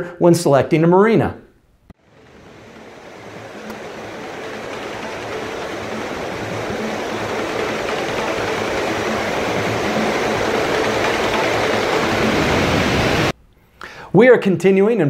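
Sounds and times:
sea water rushing: 2.0 - 13.3
wind rushing: 2.0 - 13.3.

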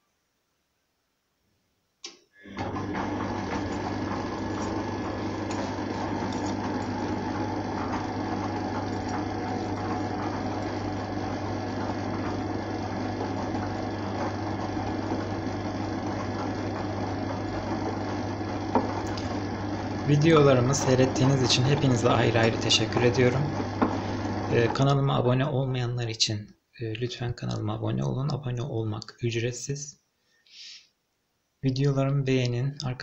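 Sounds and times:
washing machine running: 2.4 - 25.5.

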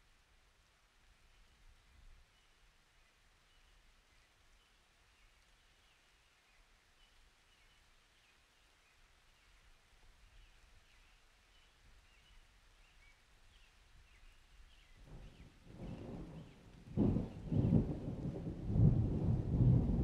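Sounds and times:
thunder rolling: 15.1 - 20.0.

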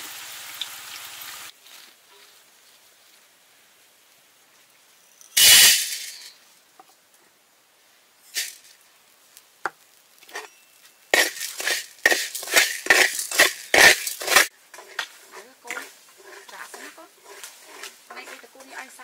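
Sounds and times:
peppercorns rattling into metal wok: 5.2 - 6.4, 8.3 - 8.9, 9.9 - 19.0
spatula scraping wok: 9.9 - 19.0.

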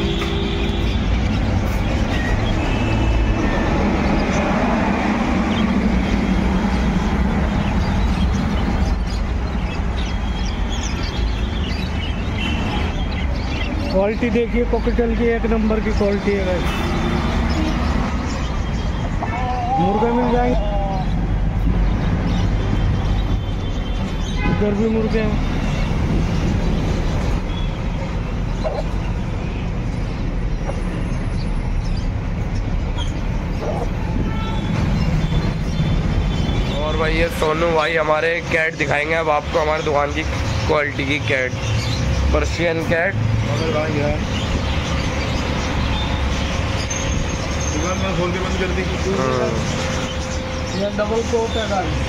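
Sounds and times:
small birds chirping: 0.0 - 52.0
street background rumble: 0.0 - 52.0
loud rumbling noise: 1.0 - 10.0.

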